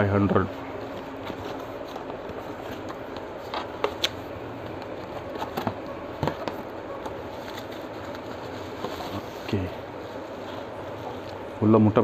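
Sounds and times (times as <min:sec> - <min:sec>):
cardboard rustling and scraping: 0:00.3 - 0:11.2
cardboard crackling: 0:00.9 - 0:09.7.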